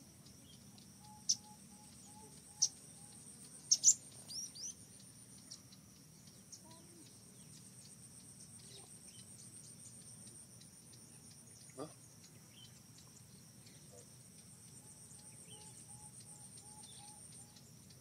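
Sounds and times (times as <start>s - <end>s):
high insect buzz: 0.0s - 18.0s
sharp high chirping calls: 3.7s - 4.8s.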